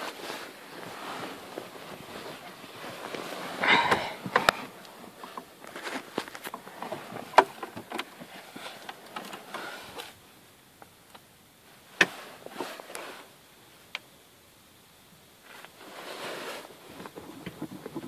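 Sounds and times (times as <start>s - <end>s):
clicks and rustles in car cabin: 1.4s - 10.2s, 12.0s - 13.0s.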